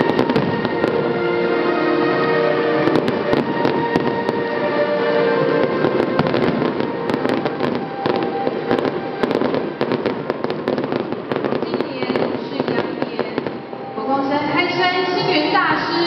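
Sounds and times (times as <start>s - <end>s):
fireworks crackle: 0.0s - 1.5s, 2.8s - 13.9s
fireworks bangs: 0.0s - 13.9s
music: 0.0s - 16.0s.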